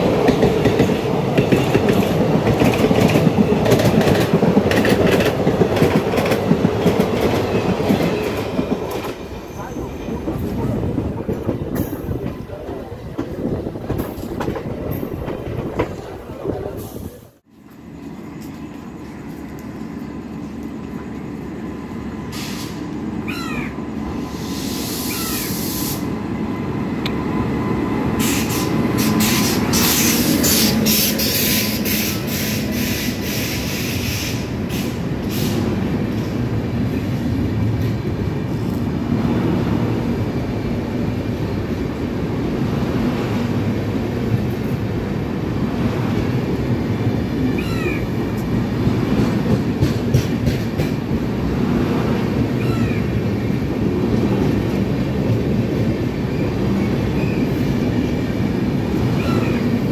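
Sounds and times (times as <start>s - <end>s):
sharp clicks from train wheels: 0.0s - 9.4s, 11.3s - 16.1s, 27.0s - 27.3s, 28.0s - 39.5s, 43.1s - 59.9s
train wheels rumbling on rail: 0.0s - 59.9s.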